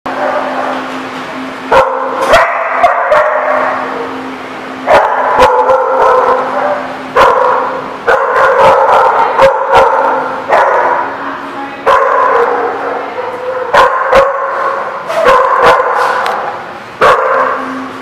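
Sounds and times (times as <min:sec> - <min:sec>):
dogs barking: 0:00.1 - 0:00.9, 0:01.7 - 0:04.2, 0:04.8 - 0:11.2, 0:11.8 - 0:17.8
dogs yipping: 0:01.7 - 0:03.8, 0:04.9 - 0:11.2, 0:11.9 - 0:17.6.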